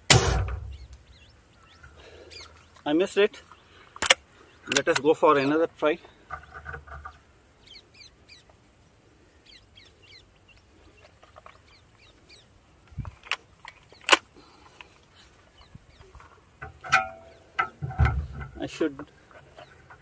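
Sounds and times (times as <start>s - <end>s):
small birds chirping: 0.0s - 20.0s
air rifle being cocked: 4.0s - 4.2s
air rifle sharp snap: 4.0s - 4.2s
air rifle click: 4.0s - 5.0s.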